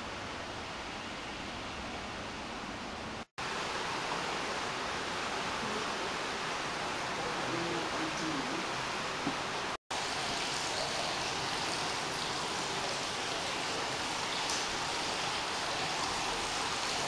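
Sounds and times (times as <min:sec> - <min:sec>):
water pouring into a bath: 0:09.9 - 0:17.0.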